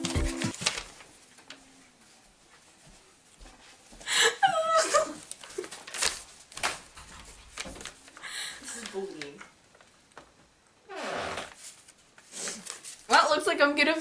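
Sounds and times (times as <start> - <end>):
girl squealing laugh: 4.2 - 5.2.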